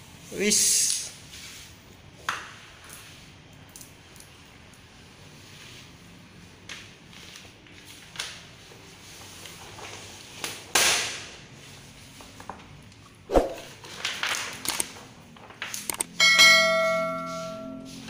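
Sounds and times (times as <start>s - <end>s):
vinyl film rustling and scraping: 5.2s - 10.7s
bell-like chime: 16.2s - 18.0s.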